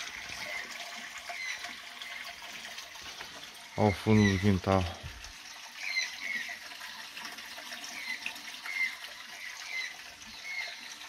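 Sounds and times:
water trickling: 0.0 - 11.0
bird calls: 3.7 - 5.0, 5.8 - 6.6, 7.9 - 11.0.

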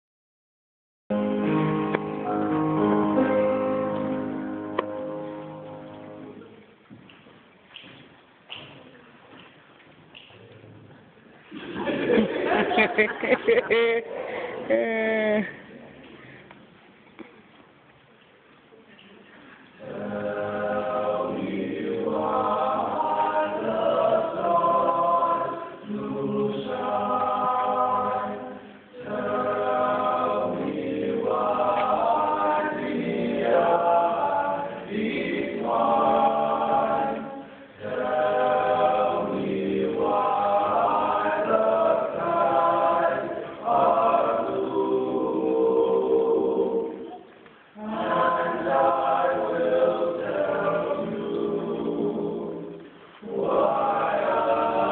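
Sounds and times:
choir singing: 1.2 - 6.4, 19.8 - 54.9.

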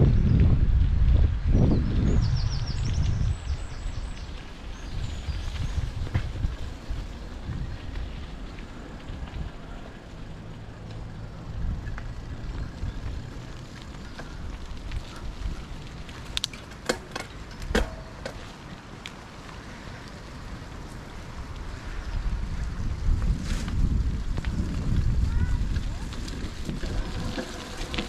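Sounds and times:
wind on microphone: 0.0 - 8.4, 21.3 - 28.0
bicycle rolling rumble: 0.0 - 28.0
bicycle clicks and rattles: 2.9 - 28.0.

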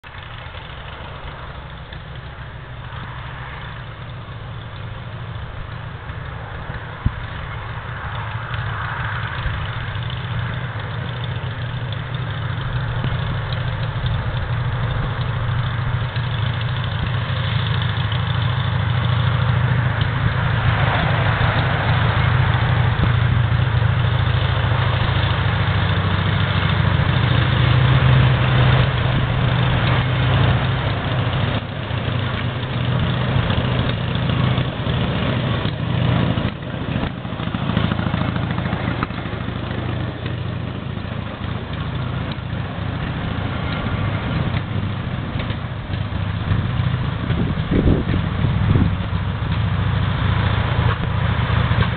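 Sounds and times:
railway trolley engine running: 0.0 - 51.9.

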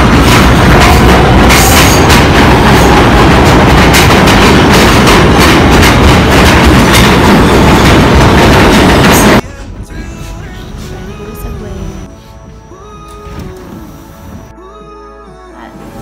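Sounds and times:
wheels clattering over rails: 0.0 - 9.4
subway train rumbling: 0.0 - 14.6, 15.6 - 16.0.

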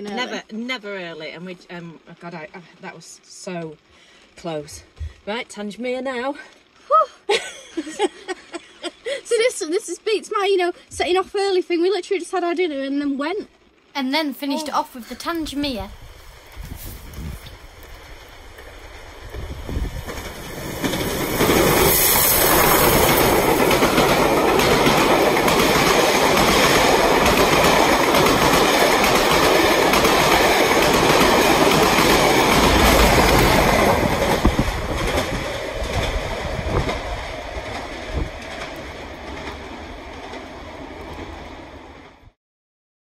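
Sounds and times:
steam train passing at speed: 13.8 - 42.4.

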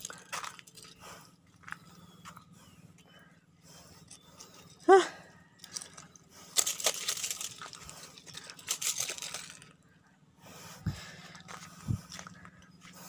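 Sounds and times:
fish rustling and clattering on shells: 0.0 - 1.8, 5.4 - 10.0.

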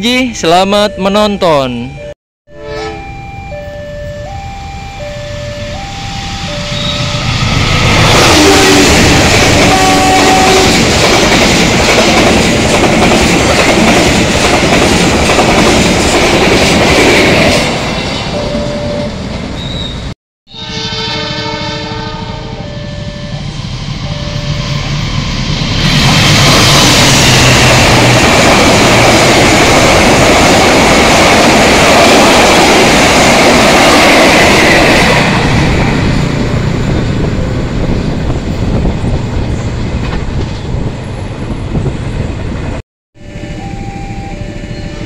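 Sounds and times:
train horn: 2.5 - 3.2, 8.1 - 10.8, 20.5 - 25.0
train passing on rails: 2.6 - 45.0.

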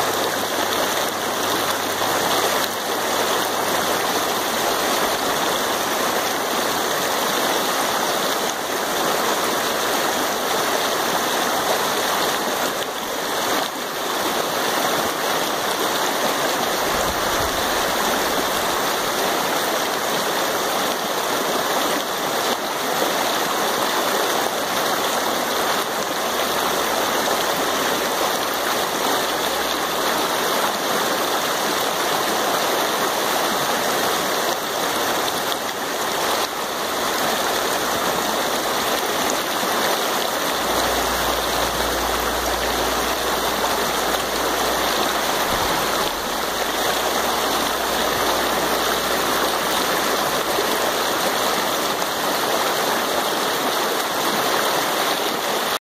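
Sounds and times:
creek rushing over rocks: 0.0 - 55.8.

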